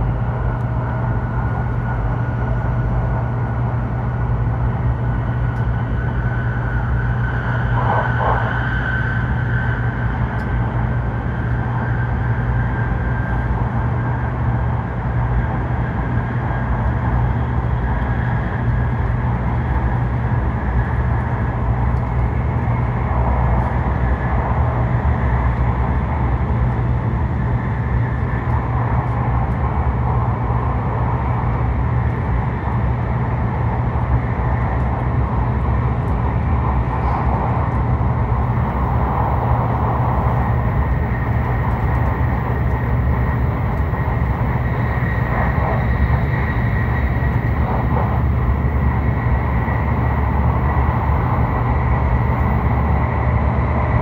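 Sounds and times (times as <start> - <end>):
train low rumble: 0.0 - 54.0
rushing noise: 6.1 - 10.8, 36.2 - 54.0.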